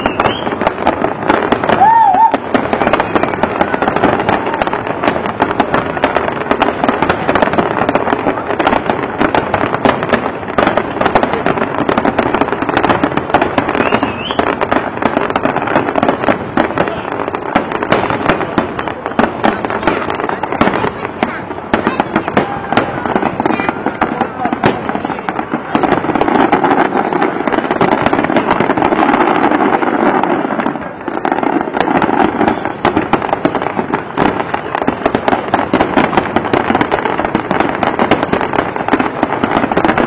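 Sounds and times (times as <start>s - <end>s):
wavering firework whistle: 0.0s - 0.6s, 1.6s - 4.8s, 13.7s - 14.6s
fireworks bursts and crackling: 0.0s - 40.0s.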